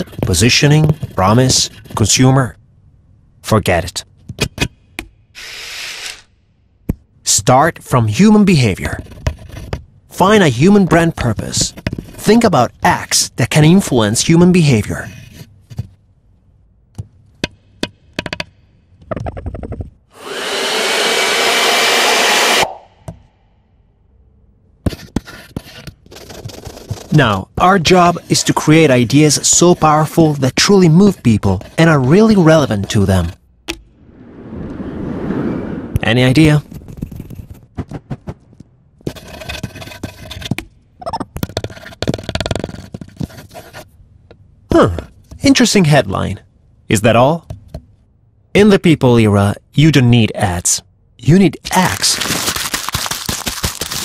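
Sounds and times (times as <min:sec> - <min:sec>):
pencil scratching on paper: 0:00.0 - 0:02.1, 0:24.9 - 0:33.4, 0:39.0 - 0:40.6, 0:41.6 - 0:43.9
pencil tapping on paper: 0:17.0 - 0:18.5
loud rush with rising whine: 0:33.8 - 0:37.2.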